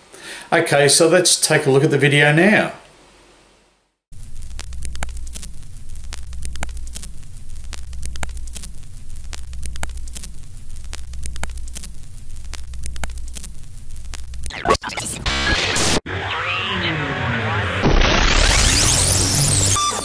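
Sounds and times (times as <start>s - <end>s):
crackling static and pops: 3.9s - 20.0s
steady low hum: 4.1s - 14.5s.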